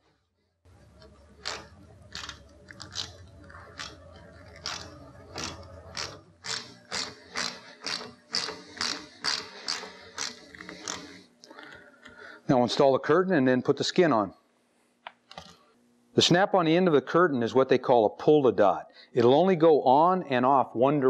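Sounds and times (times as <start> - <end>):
low hum: 0.7 - 12.7
ratcheting screwdriver clicking: 1.4 - 3.2, 3.8 - 11.2.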